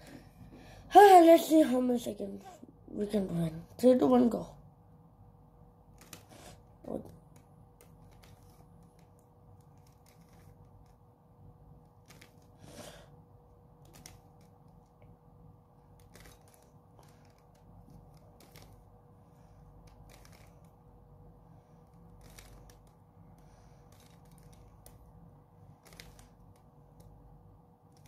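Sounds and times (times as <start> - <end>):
puzzle cube layers clicking: 5.9 - 11.0, 12.0 - 12.6, 13.8 - 14.9, 15.9 - 18.8, 19.7 - 20.7, 22.0 - 23.0, 25.8 - 27.2.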